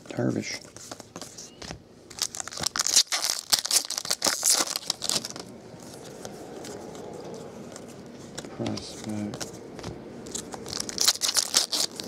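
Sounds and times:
foil wrapper crinkling and tearing: 2.1 - 6.1, 10.2 - 12.0.

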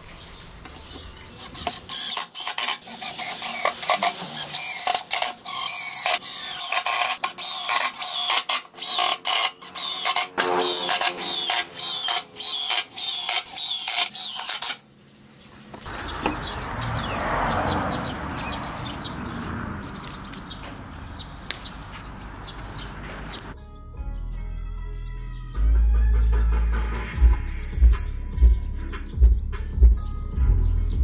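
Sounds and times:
impact driver rattling bursts: 1.4 - 14.8.

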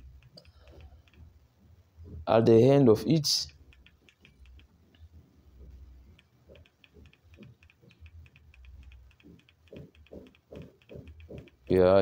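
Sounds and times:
remote control buttons clicking: 3.5 - 5.1, 6.0 - 11.8.

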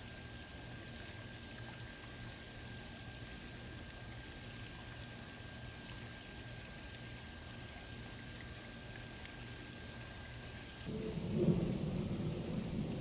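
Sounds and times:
even hiss: 10.8 - 13.0
low hum: 10.8 - 13.0
faint steady high tones: 10.9 - 13.0.

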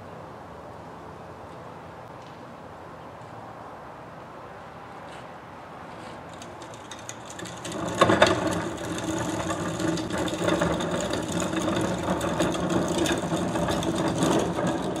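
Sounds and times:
cart wheels rattling over pavement: 6.0 - 15.0
plastic carts tipped onto wheels: 6.3 - 15.0.

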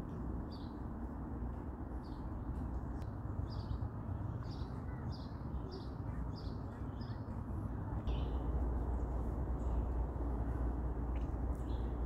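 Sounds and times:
low outdoor rumble: 0.0 - 12.0
small songbird chirping: 2.0 - 10.1, 11.1 - 12.0.

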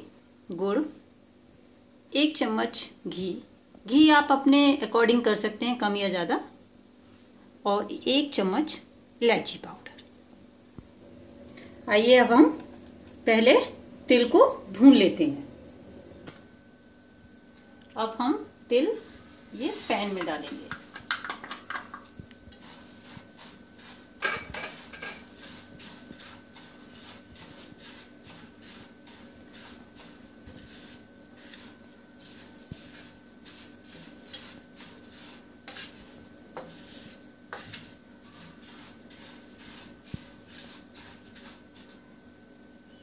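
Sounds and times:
faint steady hum: 0.0 - 43.0
wooden spatula scraping a pan: 19.2 - 21.1, 21.7 - 42.0
seeds rustling in a pan: 19.2 - 42.1.

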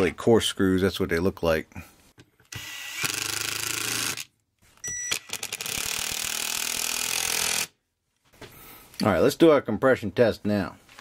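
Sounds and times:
cordless drill driving screws: 2.5 - 4.3, 4.9 - 7.7.

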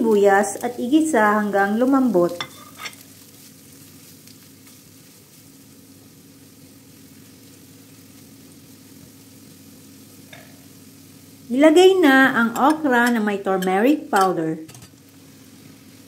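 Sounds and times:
onion sizzling in frying pan: 0.0 - 16.0
spatula stirring in pan: 1.9 - 5.6.

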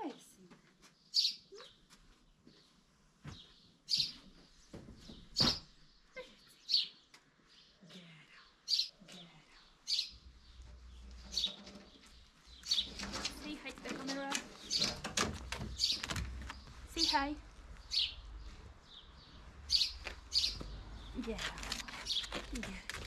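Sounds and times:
small bird chirping: 1.1 - 1.9, 3.9 - 4.3, 5.0 - 15.0, 15.7 - 23.0.

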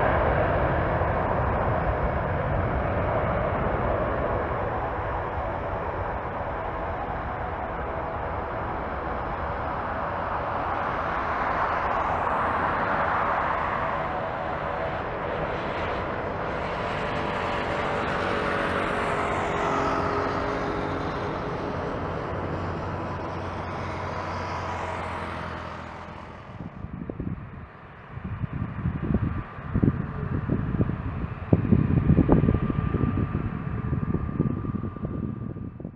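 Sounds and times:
jet engine roar: 0.0 - 35.9.

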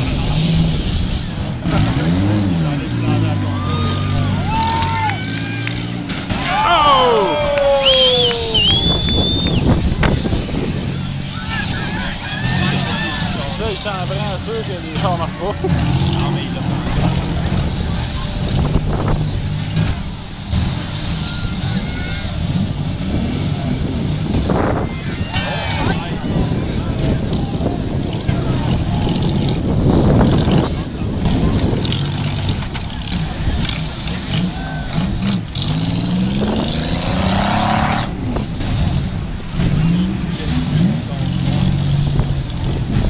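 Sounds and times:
car engines running loudly: 0.0 - 43.0
loud hiss: 17.7 - 26.0.

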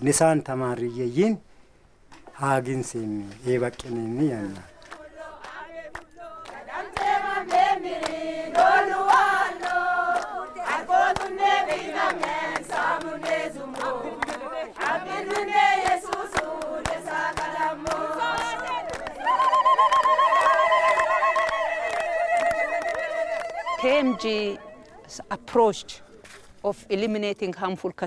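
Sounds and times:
hand clapping: 3.7 - 23.7
crowd singing in unison: 4.4 - 24.7.

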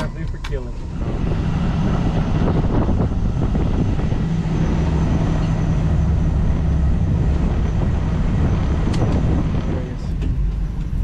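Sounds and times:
buggy engine rumbling: 0.0 - 11.0.

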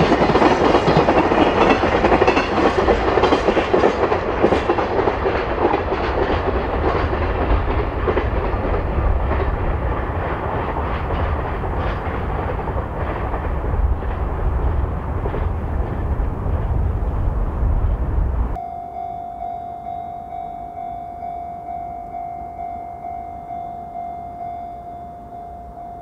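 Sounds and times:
wheels clicking over rail joints: 0.0 - 18.6
freight train rumbling past: 0.0 - 26.0.

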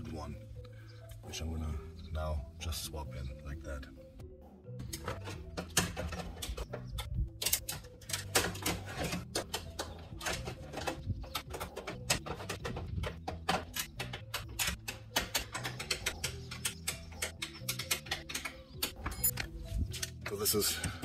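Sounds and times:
hand tools clicking and tapping: 4.8 - 21.0.

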